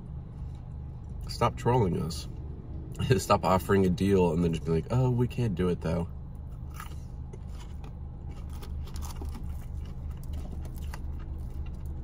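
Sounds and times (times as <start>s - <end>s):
low hum in car: 0.0s - 12.0s
person chewing: 6.3s - 12.0s.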